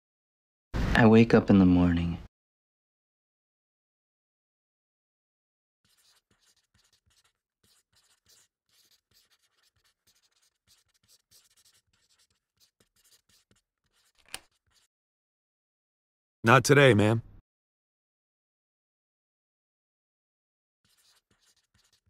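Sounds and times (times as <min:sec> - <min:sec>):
pencil scratching on paper: 0:05.8 - 0:14.9, 0:20.8 - 0:22.0.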